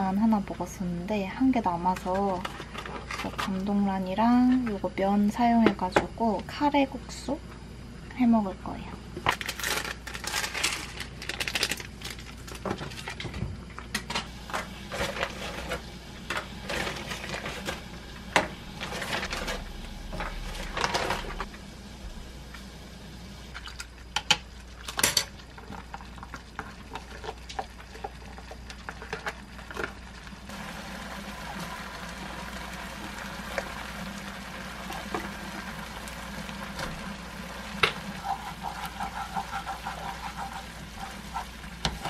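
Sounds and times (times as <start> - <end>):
plastic sachets rustling: 9.3 - 13.2.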